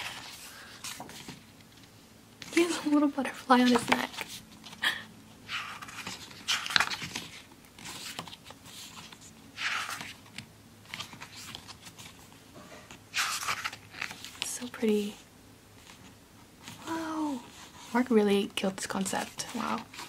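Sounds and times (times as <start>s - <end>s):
book pages turning: 0.0s - 4.8s, 5.4s - 15.0s, 19.0s - 20.0s.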